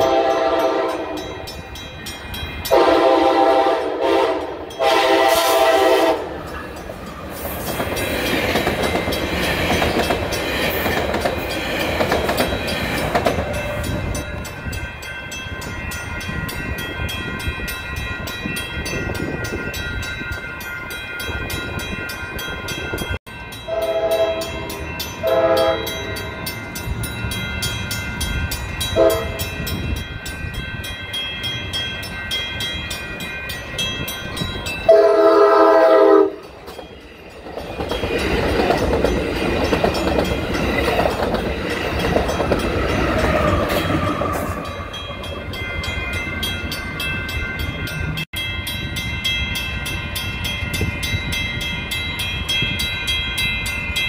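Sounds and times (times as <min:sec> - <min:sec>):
train horn blasts: 0:00.0 - 0:01.5, 0:02.7 - 0:06.4, 0:23.7 - 0:26.3, 0:29.0 - 0:29.5, 0:34.9 - 0:36.5
train passing with rumble: 0:00.0 - 0:54.0.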